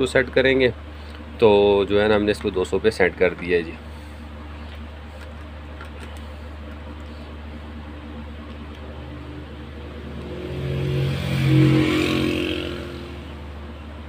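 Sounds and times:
low background hum: 0.0s - 14.0s
vehicle passing: 8.7s - 14.0s.

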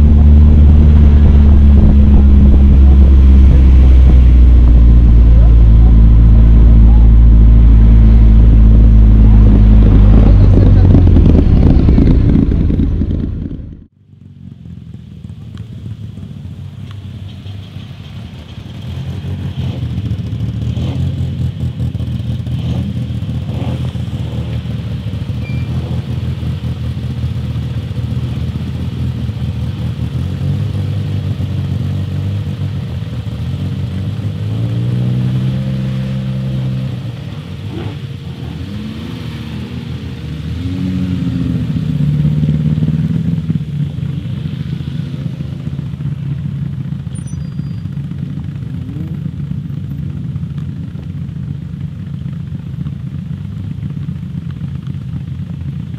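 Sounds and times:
engine revving: 0.0s - 13.9s, 18.6s - 26.8s, 29.9s - 49.4s
car engine running: 0.0s - 55.9s
car engines idling: 0.0s - 55.9s.

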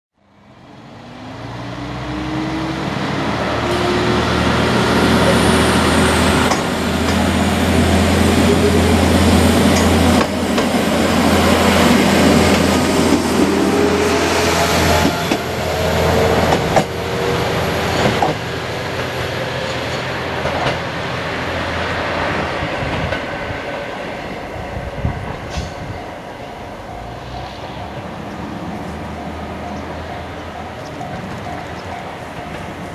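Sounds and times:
wheels clanking on track: 5.2s - 7.4s, 8.3s - 13.6s, 25.0s - 32.9s.

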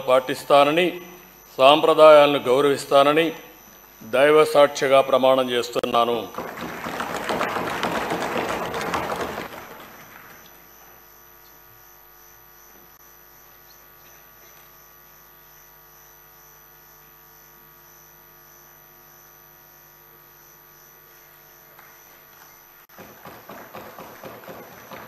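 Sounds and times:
faint high pulsing whine: 0.0s - 6.5s, 9.7s - 22.9s
electrical hum: 0.0s - 25.0s.

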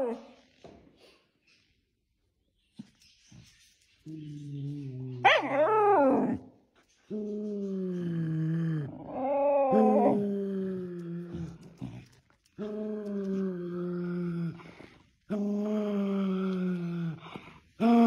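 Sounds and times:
dog howling: 5.2s - 6.5s, 7.7s - 11.6s.

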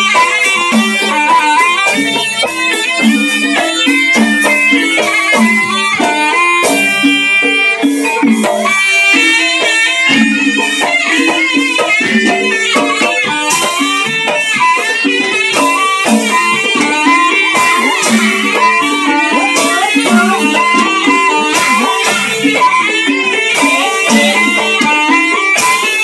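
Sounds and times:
traditional ensemble music: 0.0s - 26.0s
bright metallic strokes: 8.8s - 26.0s.

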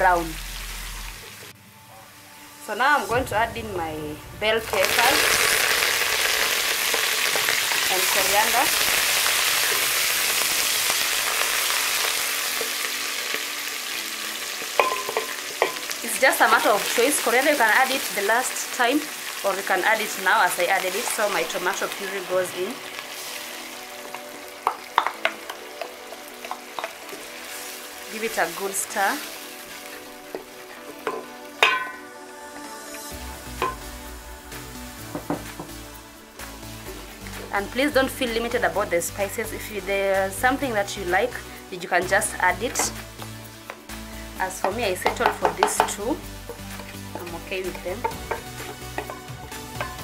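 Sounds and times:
vegetables sizzling in hot oil: 0.0s - 1.5s, 4.6s - 50.0s
spoon knocking against pot: 14.8s - 15.8s, 31.0s - 32.0s, 48.0s - 50.0s
wooden spoon stirring: 44.6s - 50.0s.

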